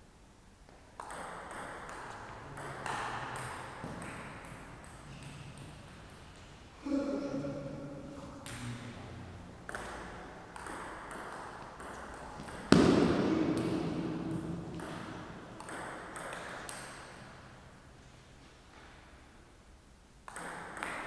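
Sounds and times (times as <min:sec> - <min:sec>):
table tennis ball hitting bats and table: 0:01.0 - 0:06.2, 0:08.4 - 0:08.9, 0:09.6 - 0:17.5, 0:20.2 - 0:21.0.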